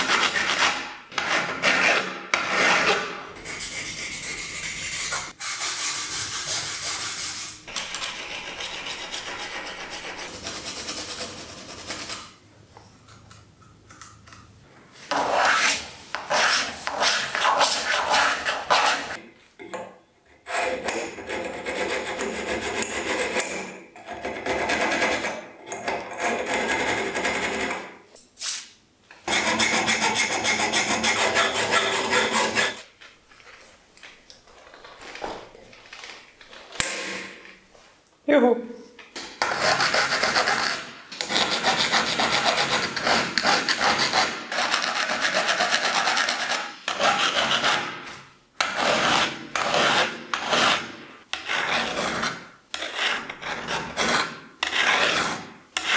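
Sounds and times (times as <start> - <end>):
file rasping on steel: 15.2 - 19.2, 29.3 - 32.8, 48.6 - 55.9.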